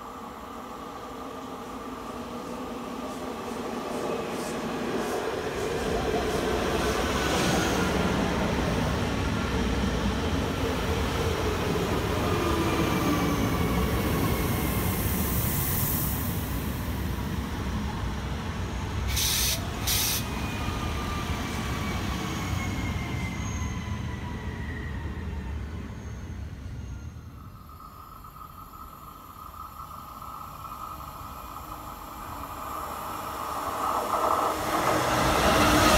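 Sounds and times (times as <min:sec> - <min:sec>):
short hissing bursts: 0:19.1 - 0:20.3
train rolling rumble: 0:25.4 - 0:35.9.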